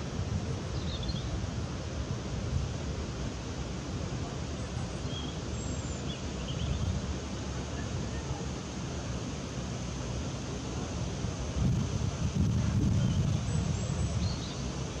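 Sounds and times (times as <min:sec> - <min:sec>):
steady outdoor hiss: 0:00.0 - 0:15.0
wind buffeting microphone: 0:11.4 - 0:15.0.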